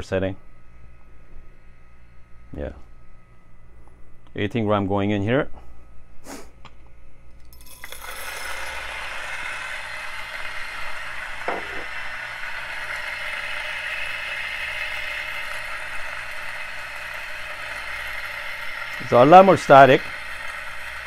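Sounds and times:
coffee grinder grinding beans: 7.4s - 21.0s.

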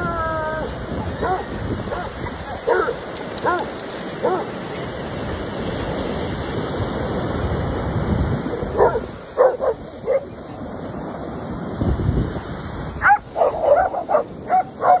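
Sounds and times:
surf washing: 0.0s - 15.0s
dogs barking: 1.1s - 4.5s, 8.6s - 10.3s, 13.0s - 15.0s.

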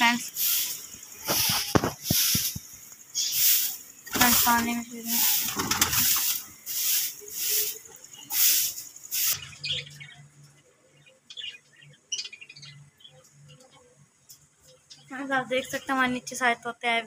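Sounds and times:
loud rustling bursts: 0.0s - 9.4s.

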